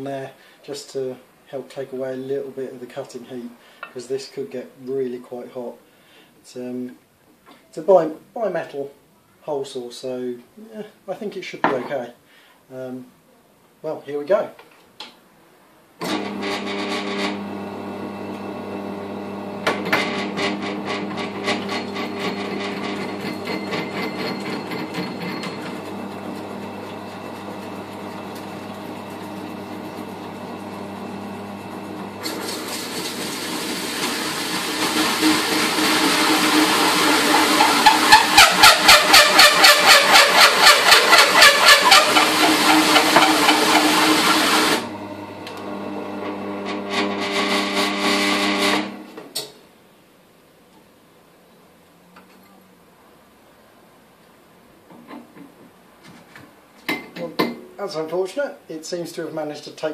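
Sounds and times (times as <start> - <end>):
drill press motor running: 16.0 - 49.0
hole saw cutting with chatter: 34.8 - 44.9.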